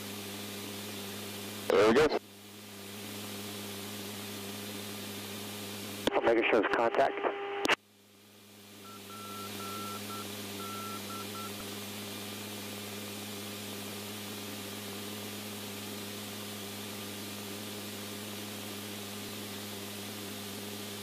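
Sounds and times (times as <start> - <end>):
electrical hum: 0.0 - 21.0
radio channel hiss: 1.6 - 2.2, 6.0 - 7.8
short beeps: 8.9 - 11.5.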